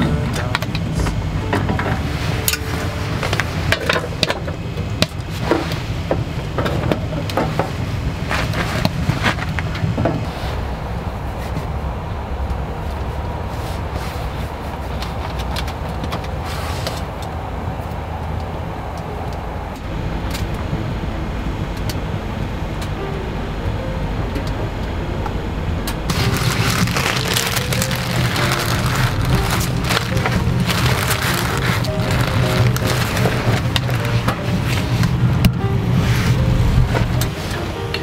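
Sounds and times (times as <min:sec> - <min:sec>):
stove low rumble: 0:00.0 - 0:38.0
fire crackling: 0:19.7 - 0:35.5.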